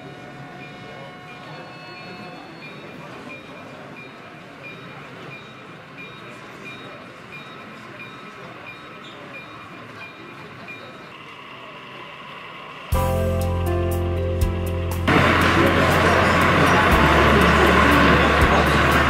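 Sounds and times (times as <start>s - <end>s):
hall noise: 11.1s - 19.0s.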